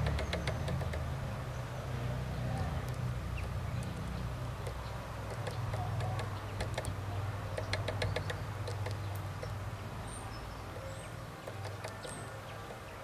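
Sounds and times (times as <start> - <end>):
bird pecking on wooden tray: 0.0 - 1.1, 4.6 - 9.5, 11.4 - 12.8.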